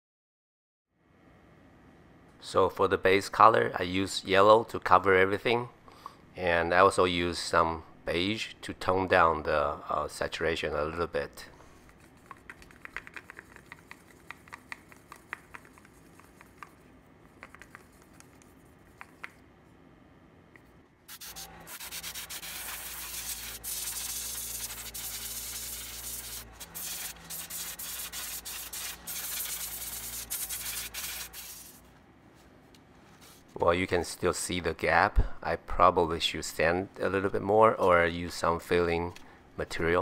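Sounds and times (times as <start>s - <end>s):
airbrush spraying hiss: 21.1s - 31.8s.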